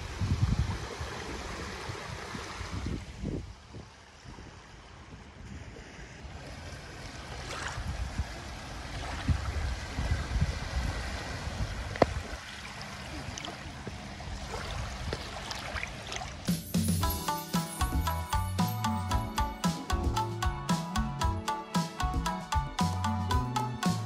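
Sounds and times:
small waves lapping in shallows: 0.0s - 16.5s
wind rumbling on microphone: 0.0s - 16.5s.

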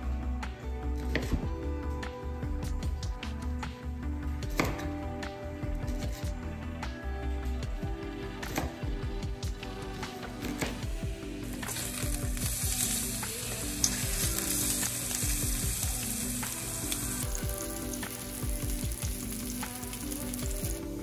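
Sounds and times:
fish sizzling in hot oil: 11.6s - 21.0s.

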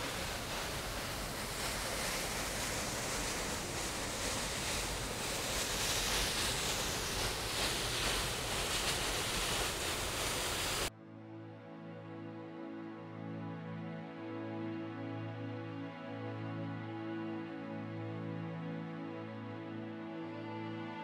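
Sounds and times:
waterfall rushing: 0.0s - 10.9s.

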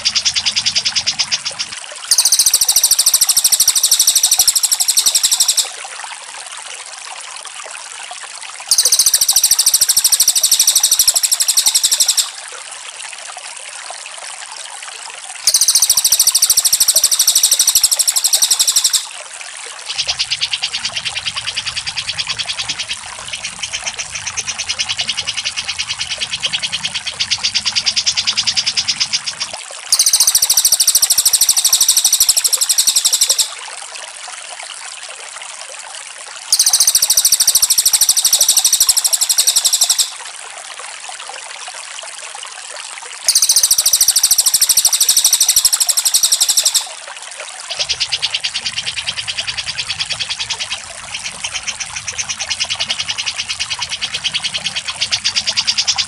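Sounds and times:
high-pitched bird trilling: 0.0s - 5.8s, 8.7s - 12.4s, 15.5s - 19.1s, 29.9s - 33.6s, 36.5s - 40.2s, 43.3s - 47.0s
lower rapid bird trill: 0.0s - 5.8s, 8.7s - 12.4s, 15.5s - 19.2s, 19.9s - 33.6s, 36.5s - 40.2s, 43.3s - 47.0s, 47.7s - 56.0s.

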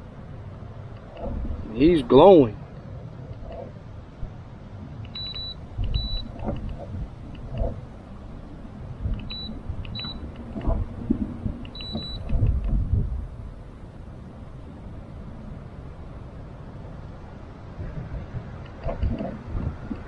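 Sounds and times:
wind buffeting microphone: 0.0s - 20.0s
high electronic beeps: 5.2s - 6.3s, 11.8s - 12.3s.

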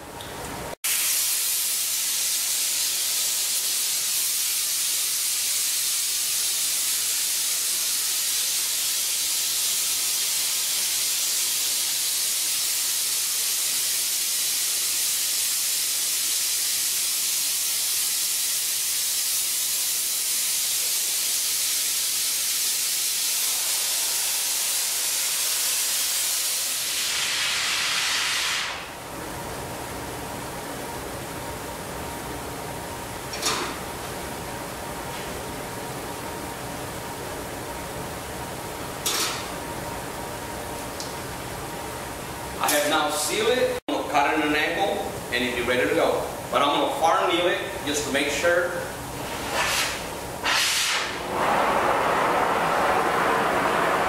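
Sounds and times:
gas torch flame hissing: 0.9s - 29.0s, 48.7s - 54.0s.

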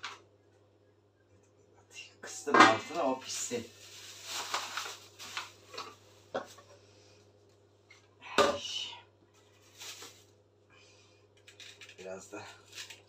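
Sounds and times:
plastic bag crinkling: 2.9s - 6.6s, 9.4s - 10.3s, 11.4s - 13.0s.

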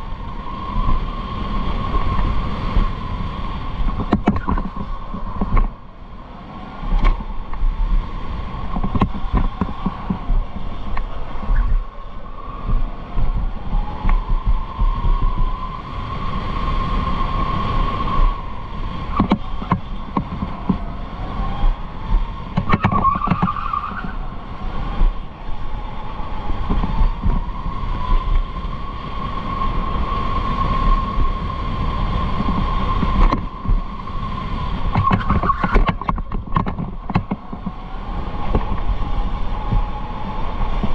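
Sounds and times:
low rumble: 0.0s - 16.1s.

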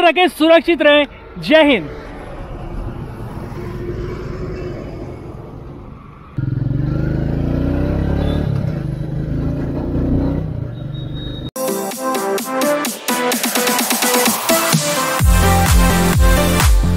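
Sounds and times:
road traffic noise: 0.0s - 11.6s
motorcycle engine accelerating: 1.8s - 11.5s.

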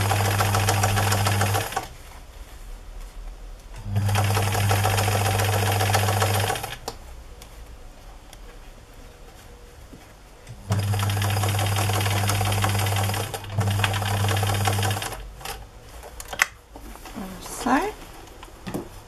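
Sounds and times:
sewing machine stitching: 0.0s - 1.9s, 3.8s - 6.9s, 10.6s - 15.6s.

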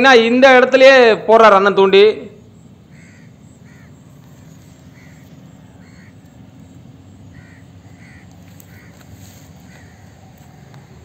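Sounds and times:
bird calling: 2.4s - 11.0s.

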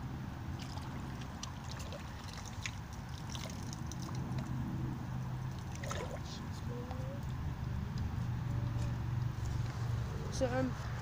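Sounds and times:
shallow water splashing: 0.5s - 6.6s.

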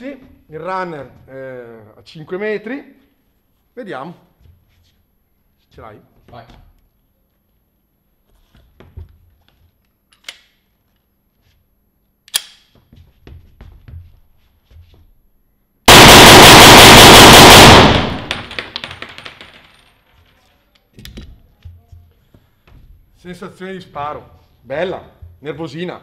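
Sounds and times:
pistol shots in rapid succession: 15.9s - 18.6s.

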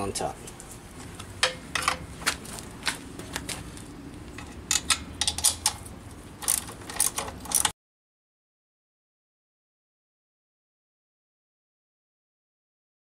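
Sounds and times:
wrenches clinking on metal bolts: 1.4s - 2.0s, 4.4s - 7.7s.

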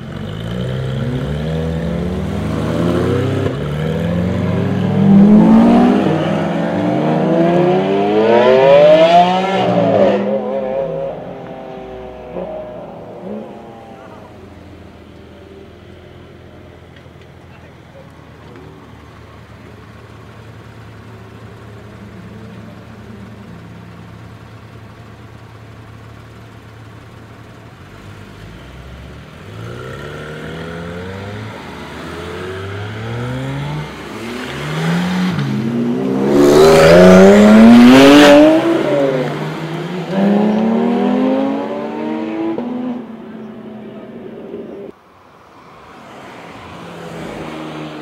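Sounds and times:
cars accelerating hard: 0.0s - 14.8s, 28.0s - 45.0s
car engines idling: 8.9s - 48.0s.

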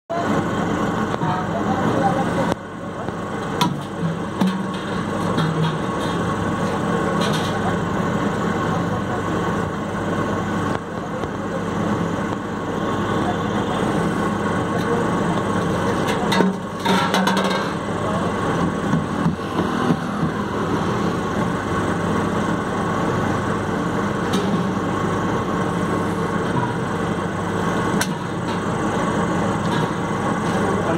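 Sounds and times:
washing machine motor running: 17.8s - 30.9s.

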